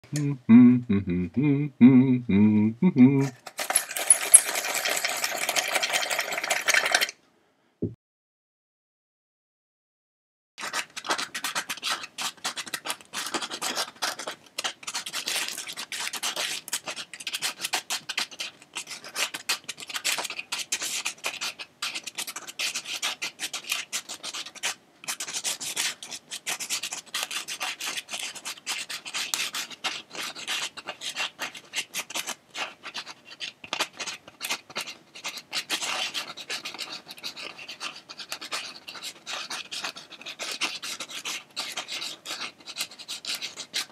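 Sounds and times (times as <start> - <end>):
drawing tool scratching paper: 14.9 - 43.9.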